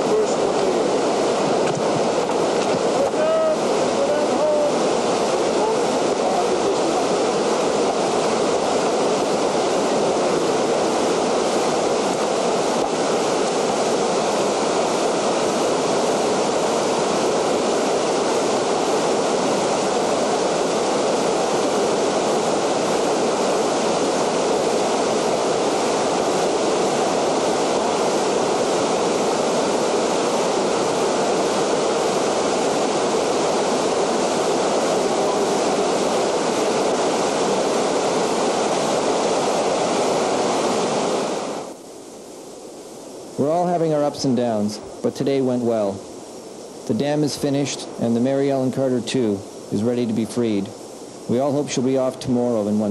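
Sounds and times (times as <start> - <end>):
river rushing around rocks: 0.0 - 52.9.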